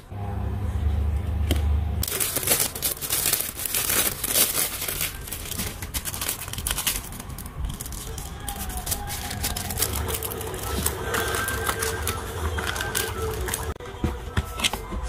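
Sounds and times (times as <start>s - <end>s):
low steady hum: 0.0s - 8.8s
plastic sleeve crinkling: 2.0s - 13.8s.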